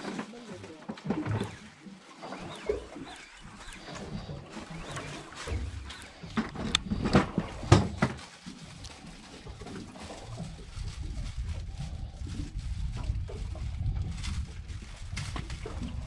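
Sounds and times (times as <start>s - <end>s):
knocks and rubbing on fishing reel: 1.0s - 11.2s
steady low rumble: 2.5s - 16.0s.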